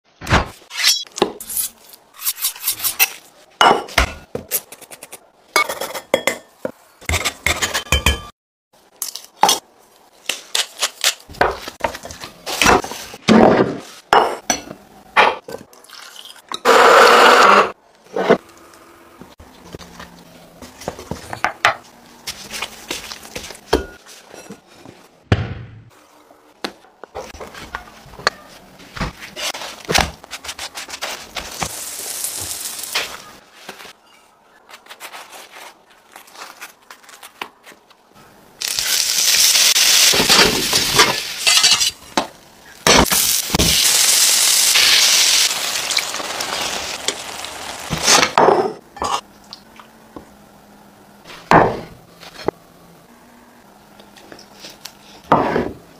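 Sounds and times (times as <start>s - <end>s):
flatbread sizzling in a pan: 31.3s - 33.2s.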